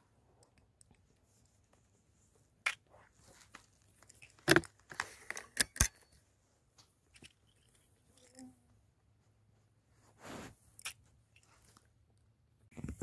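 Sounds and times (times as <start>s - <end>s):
handling clicks and knocks: 3.5s - 6.2s.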